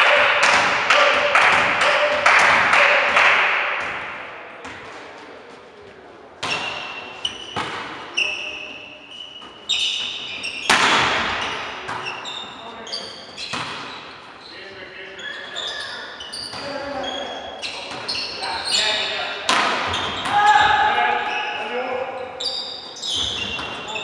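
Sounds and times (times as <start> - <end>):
volleyball hits echoing: 0.0 - 5.1, 6.4 - 8.2, 9.4 - 12.2, 13.4 - 14.3, 19.4 - 21.3
sneakers squeaking on court: 6.4 - 24.0.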